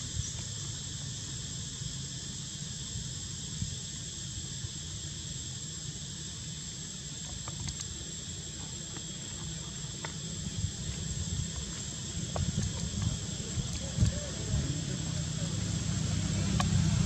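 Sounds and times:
insects droning: 0.0s - 17.0s
faint ticks: 7.3s - 8.0s.

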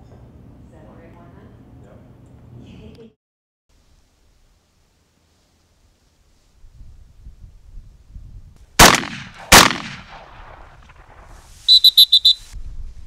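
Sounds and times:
shotgun shots with echo: 8.8s - 11.3s.

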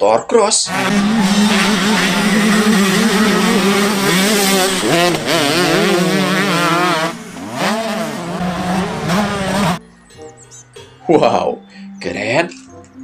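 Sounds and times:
dirt bike engines revving: 0.7s - 9.8s.

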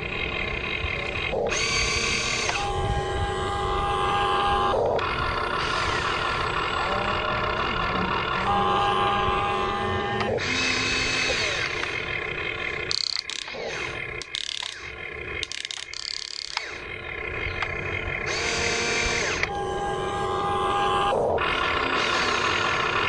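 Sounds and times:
small electric motors whining: 0.0s - 23.0s
sharp clicks: 1.3s - 2.7s, 10.2s - 12.0s, 12.8s - 19.5s.

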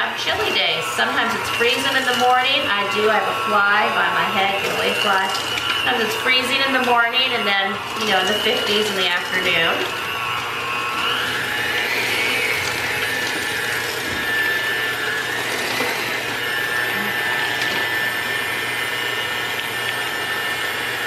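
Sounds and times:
electric hand mixer whining: 0.0s - 21.0s.

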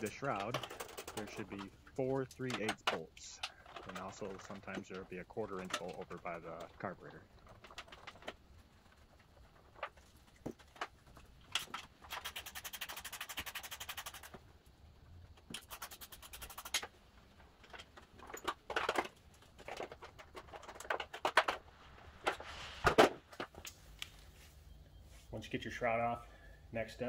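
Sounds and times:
metal bolts knocking and rattling: 0.0s - 12.3s.

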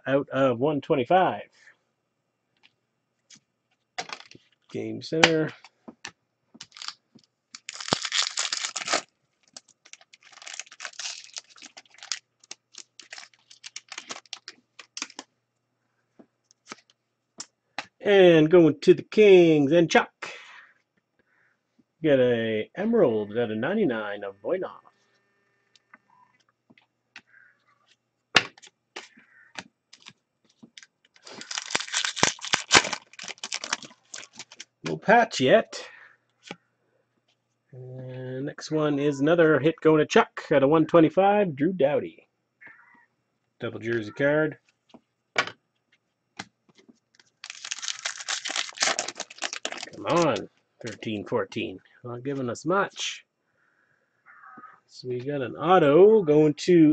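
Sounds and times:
foil wrapper tearing and crinkling: 6.6s - 15.2s, 29.9s - 30.1s, 30.8s - 34.7s, 47.1s - 51.0s.

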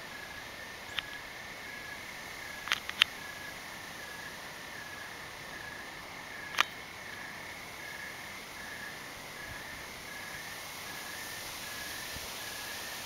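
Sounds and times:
crickets trilling: 0.0s - 13.0s
insect chirping in pulses: 0.0s - 13.0s
sharp click: 2.6s - 3.1s, 6.5s - 6.8s.

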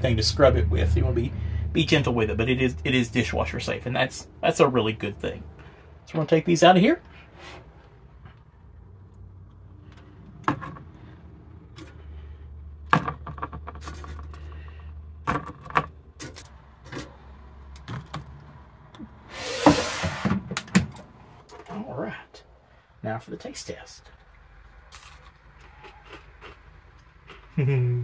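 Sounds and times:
basket sliding into air fryer: 19.3s - 20.4s.

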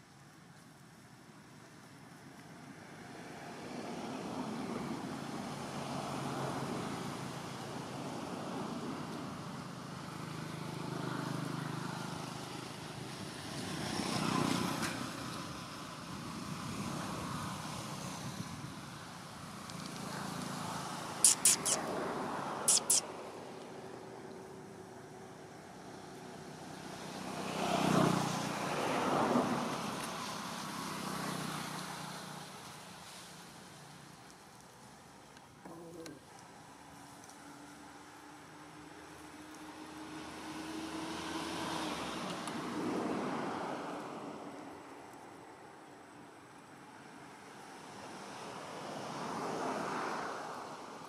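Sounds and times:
motor vehicle passing: 19.4s - 34.1s, 36.6s - 44.8s.

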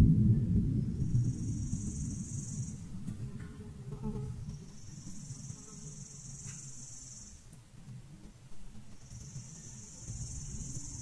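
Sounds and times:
low rumble: 0.0s - 5.4s
insects buzzing: 0.8s - 11.0s.

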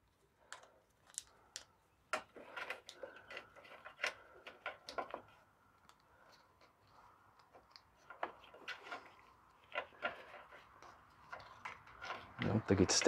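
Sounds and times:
faint clicks and rustling: 0.0s - 13.0s.

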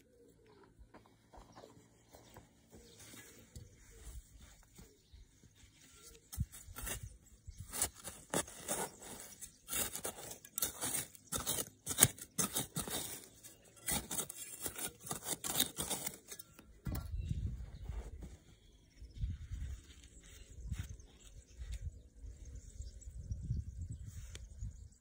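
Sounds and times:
hands digging in soil: 2.8s - 16.6s.

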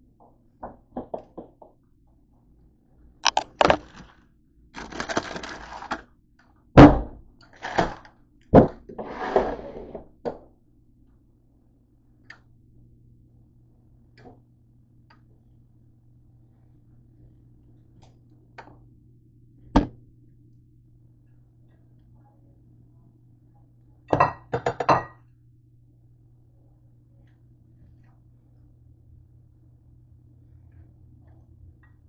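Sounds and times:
things clattering on kitchen counter: 24.1s - 25.2s.

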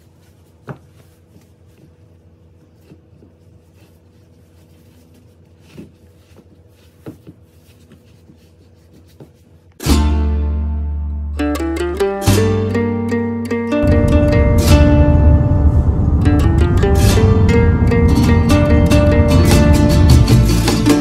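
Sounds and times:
loud plucked-string music: 9.8s - 21.0s
steady low hum: 12.7s - 21.0s.

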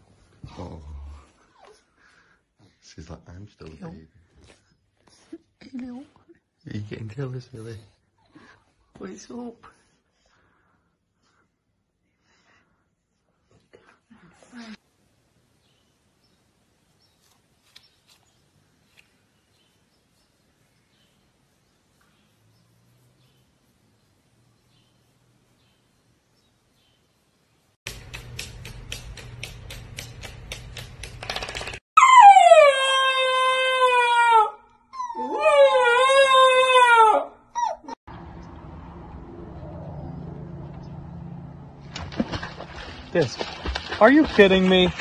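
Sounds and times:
puppy howling: 32.0s - 38.0s
puppy yelp: 32.0s - 38.0s.

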